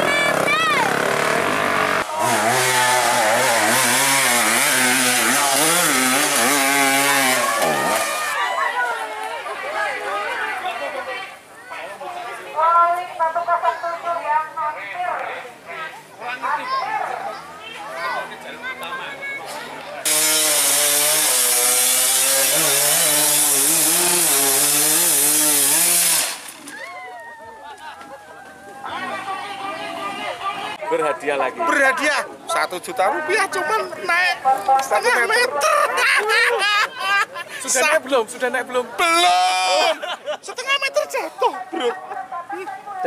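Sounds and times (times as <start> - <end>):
dirt bike engine revving: 0.0 - 8.4, 20.1 - 26.7.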